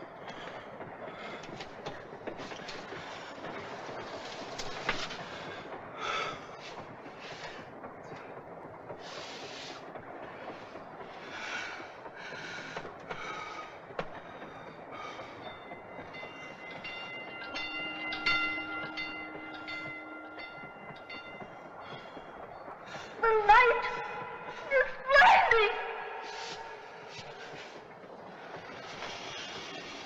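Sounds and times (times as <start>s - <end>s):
train rumbling and rattling: 0.0s - 30.0s
train whistle: 23.2s - 27.0s.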